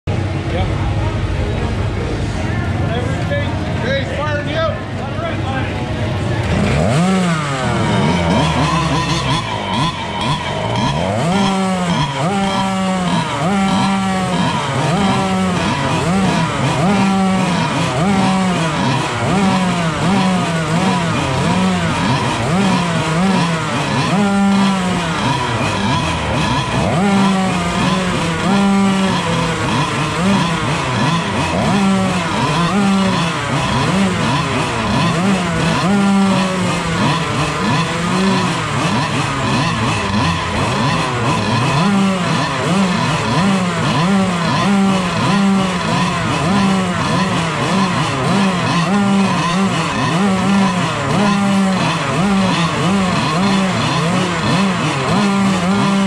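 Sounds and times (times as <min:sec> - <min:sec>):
small kart engines revving: 0:00.0 - 0:56.0.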